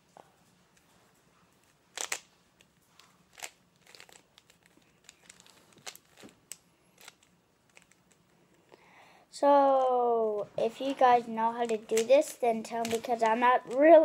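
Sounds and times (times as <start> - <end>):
puzzle cube layers clicking: 1.9 - 2.2, 11.6 - 14.0.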